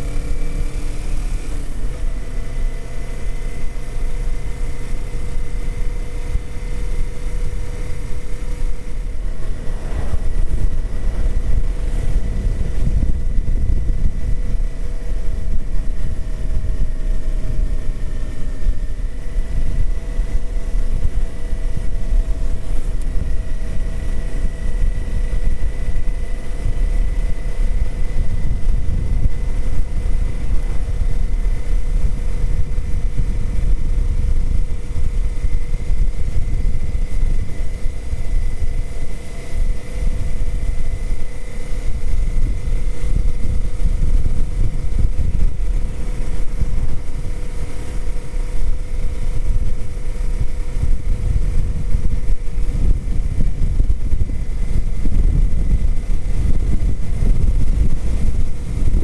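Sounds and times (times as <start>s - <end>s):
faint steady whine: 0.0s - 59.0s
motorcycle cruising: 0.0s - 59.0s
wind rumbling on microphone: 0.0s - 59.0s.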